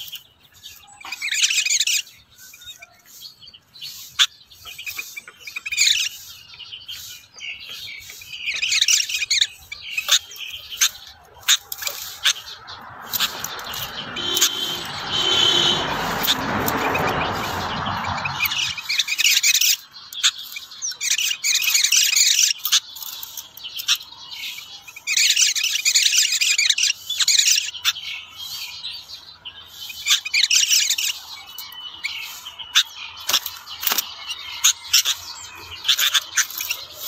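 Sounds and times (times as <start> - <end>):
songbirds chirping and warbling: 0.0 - 37.0
broad rushing noise: 11.6 - 18.9.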